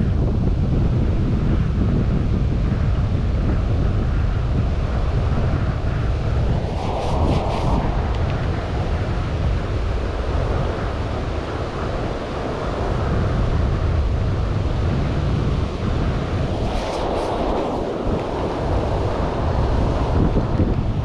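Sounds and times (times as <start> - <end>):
wind buffeting microphone: 0.0 - 21.0
sleeve brushing microphone: 6.7 - 8.6.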